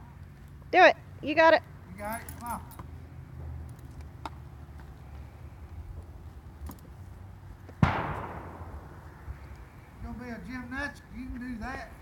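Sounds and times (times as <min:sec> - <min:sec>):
loud thump: 0:07.8 - 0:09.0.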